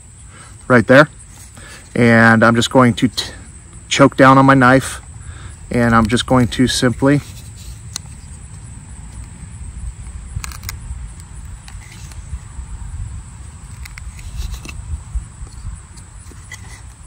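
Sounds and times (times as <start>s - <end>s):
knife scraping into wood: 6.9s - 8.5s, 11.6s - 12.3s, 13.6s - 14.9s, 15.5s - 17.0s.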